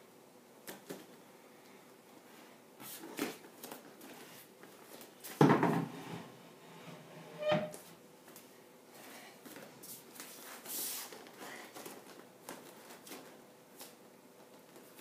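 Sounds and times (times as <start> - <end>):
chair thud on wooden floor: 5.4 - 6.0
bare feet on gym mats: 8.2 - 14.0.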